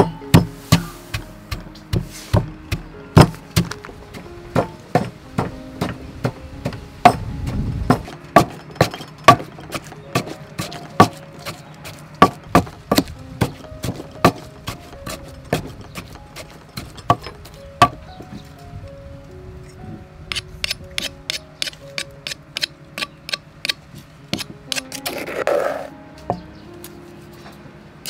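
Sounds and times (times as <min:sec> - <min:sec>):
wooden pestle pounding in mortar: 0:00.0 - 0:18.0.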